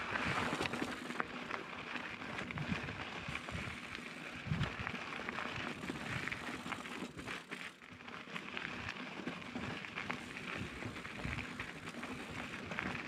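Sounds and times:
bike rattling: 0.0 - 13.0.

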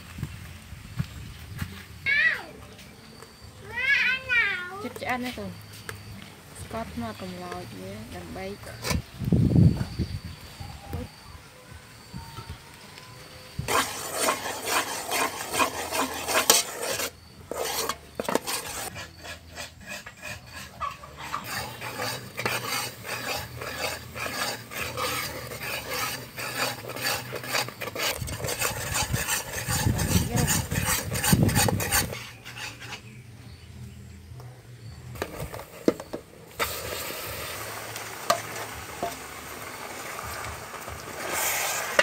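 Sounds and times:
metal spoon scraping a pot: 8.6 - 9.1, 13.7 - 33.2, 35.2 - 39.4, 41.2 - 42.0.

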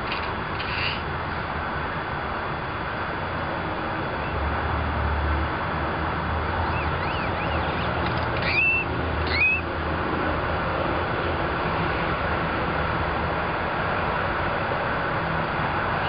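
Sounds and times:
crow squeaky calls: 0.0 - 1.0, 6.6 - 9.7
traffic rumble: 0.0 - 16.0.

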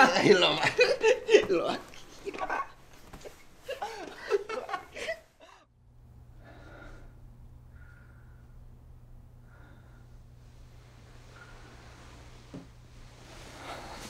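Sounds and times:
young man laughing hard: 0.0 - 1.9, 3.7 - 5.6
low steady hum: 0.0 - 14.0
soft breaths: 5.0 - 14.0.

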